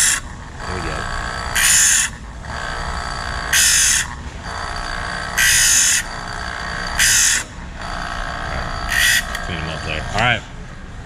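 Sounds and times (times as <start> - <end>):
electric grinder running: 0.0 - 10.4
metal ring grinding on wheel: 0.0 - 10.8.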